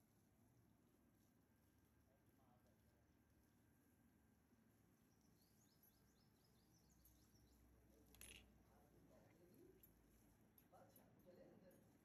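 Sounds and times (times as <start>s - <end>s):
faint high bird chirps: 5.0s - 7.8s.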